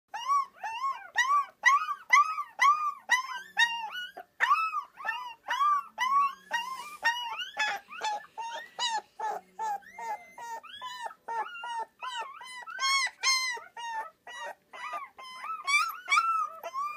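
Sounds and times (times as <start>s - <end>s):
puppy howling: 0.1s - 16.9s.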